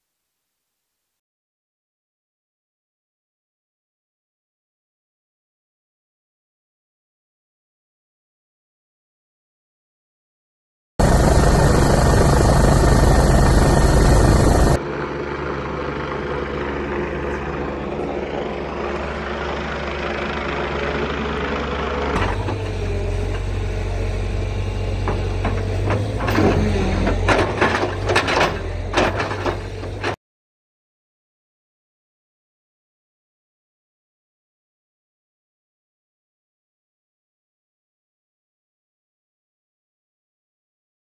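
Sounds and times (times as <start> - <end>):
excavator diesel engine running: 11.0 - 30.2.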